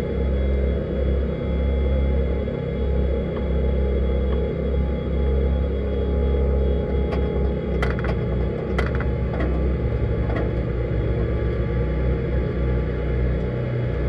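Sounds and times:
buggy engine rumble: 0.0 - 14.0
sharp knocks and rattles: 7.0 - 10.8.

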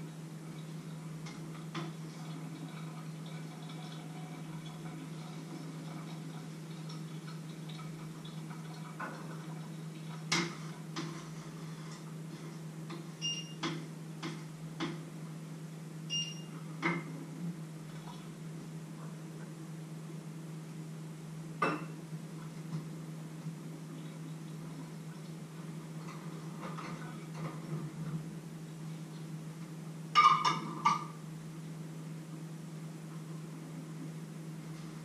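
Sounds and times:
steady low hum: 0.0 - 35.0
kitchen utensils and pots clinking: 30.2 - 31.2.

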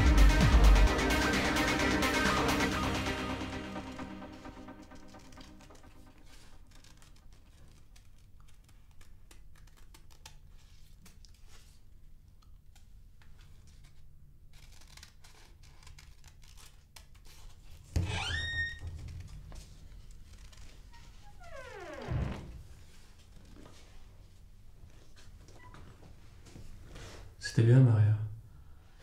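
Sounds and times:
door squeaking open: 18.0 - 19.5, 20.3 - 22.6.

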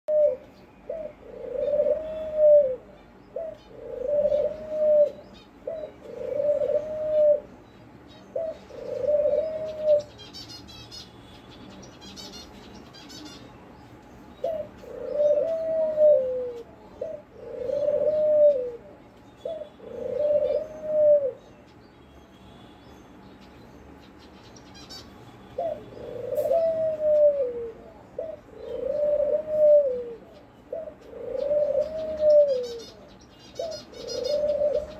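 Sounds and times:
dove cooing: 0.1 - 7.6, 8.3 - 10.5, 14.4 - 21.4, 25.6 - 34.9.

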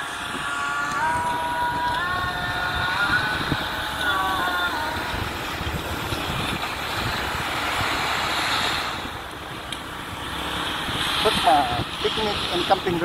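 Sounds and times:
scooter engine running: 0.0 - 13.0
wind rushing over microphone: 0.0 - 13.0.

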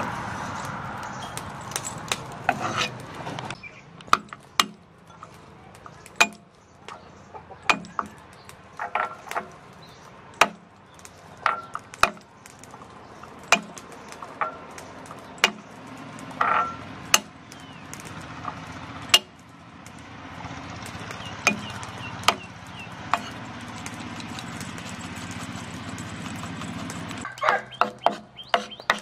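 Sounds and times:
low engine-like hum: 0.0 - 27.8
cleaver chopping on wooden block: 4.1 - 4.8, 6.2 - 6.4, 7.7 - 8.2, 10.4 - 10.7, 11.5 - 12.2, 13.5 - 13.8, 21.4 - 22.5, 23.1 - 23.4, 26.2 - 29.0.

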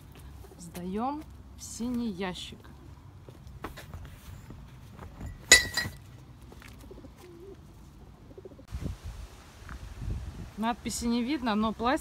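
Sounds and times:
glass bottle clinking against glass: 5.3 - 6.0.

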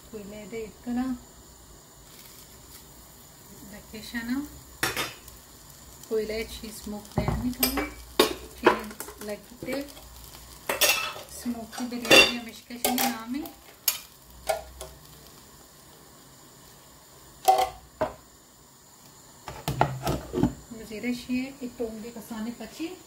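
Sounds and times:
metal utensils clinking on pot: 10.7 - 13.2, 17.4 - 17.8.

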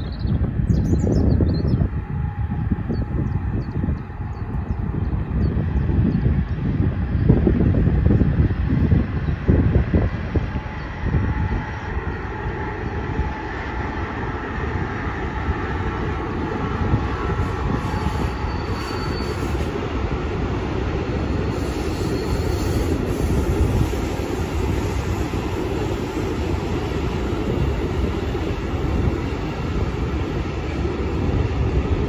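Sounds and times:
freight train wheels rumbling: 0.0 - 32.0
high wheel squeal: 17.4 - 19.7, 21.4 - 24.5.

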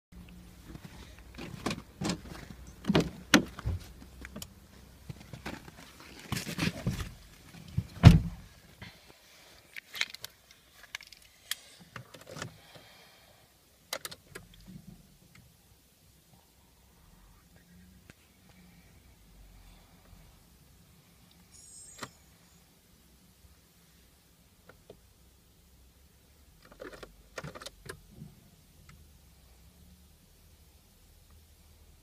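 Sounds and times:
car door opening and shutting: 0.8 - 3.9, 6.3 - 8.5.

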